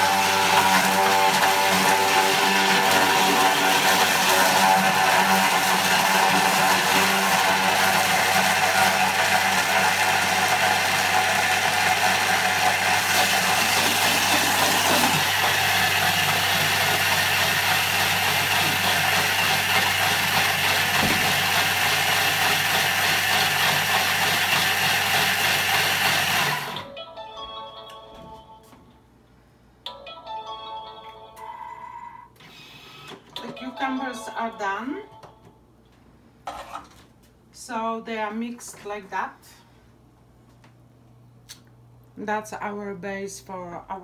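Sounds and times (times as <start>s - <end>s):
food processor blending: 0.0s - 26.8s.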